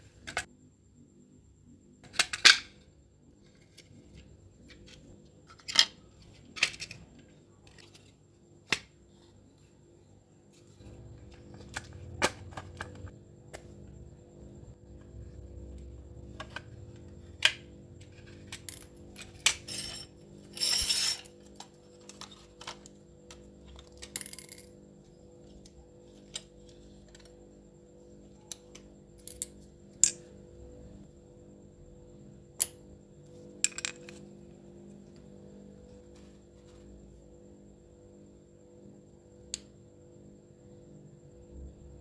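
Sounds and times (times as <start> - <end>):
steady low hum: 0.0 - 42.0
small metal parts clinking: 18.1 - 22.9.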